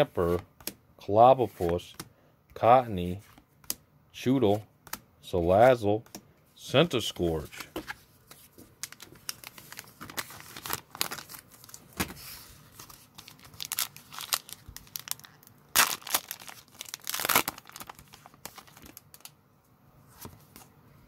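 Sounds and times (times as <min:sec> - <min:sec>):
foil pack crinkling and tearing: 0:08.8 - 0:19.3.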